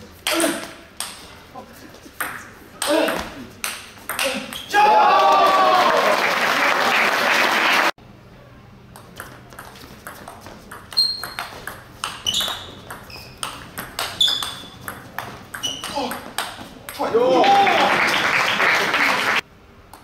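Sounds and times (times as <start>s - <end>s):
table tennis ball clicks: 8.9s - 16.6s
short high squeaks: 10.9s - 11.6s, 12.2s - 13.5s, 14.1s - 14.9s, 15.6s - 16.0s
loud crowd noise: 17.1s - 19.4s.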